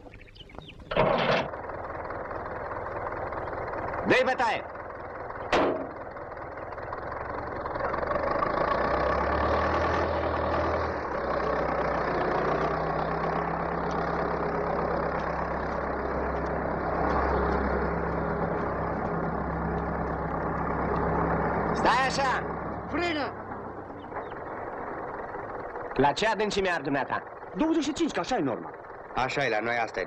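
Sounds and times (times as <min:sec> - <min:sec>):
tractor engine running: 0:00.0 - 0:30.0.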